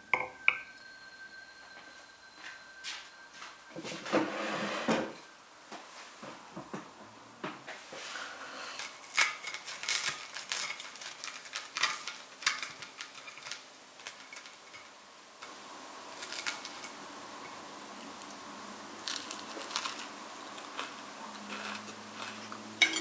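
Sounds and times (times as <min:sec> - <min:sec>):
cutlery scraping on a plate: 0:03.9 - 0:05.2, 0:21.4 - 0:23.0
crunching waffle: 0:08.8 - 0:14.6, 0:16.1 - 0:17.0, 0:19.0 - 0:22.8.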